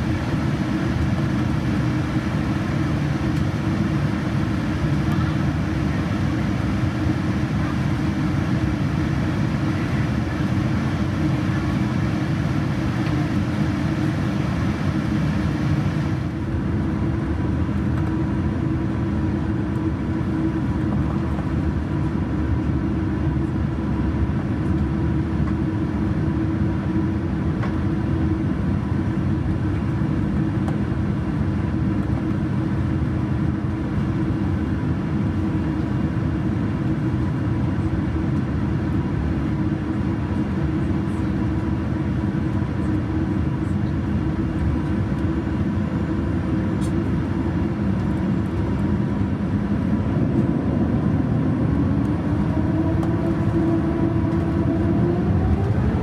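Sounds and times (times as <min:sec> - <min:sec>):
cabin low rumble: 0:44.6 - 0:56.0.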